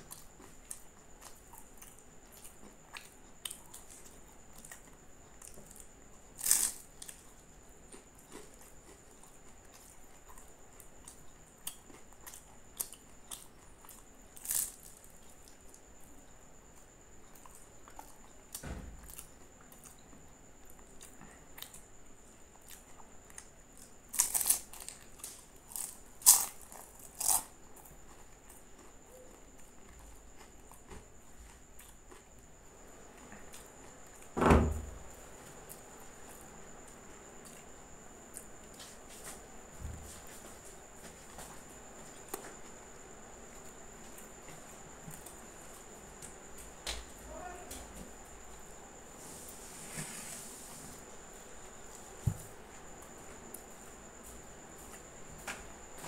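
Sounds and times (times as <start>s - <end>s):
close chewing with mouth sounds: 0.0s - 34.3s
loud crunchy bites: 6.4s - 7.2s, 14.4s - 15.0s, 24.1s - 27.5s
dull low thump: 34.4s - 35.0s.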